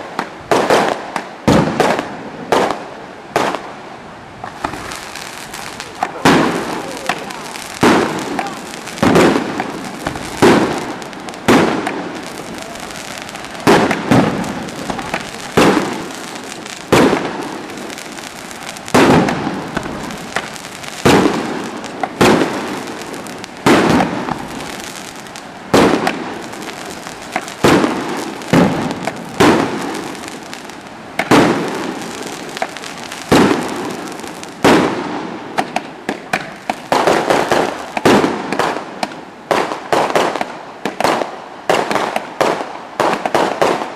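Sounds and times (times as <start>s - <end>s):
firework shells bursting: 4.4s - 39.2s.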